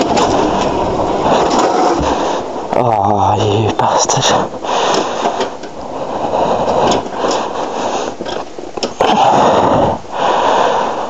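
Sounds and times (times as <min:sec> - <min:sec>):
motorbike scraping and rolling: 0:00.0 - 0:02.7
person breathing hard: 0:04.5 - 0:08.3, 0:09.0 - 0:11.0.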